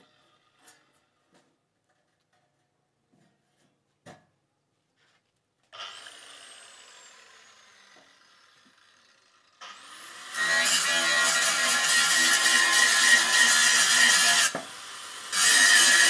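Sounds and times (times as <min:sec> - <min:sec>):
angle grinder whine: 0:05.8 - 0:13.3
grinder grinding sheet metal: 0:05.8 - 0:16.0.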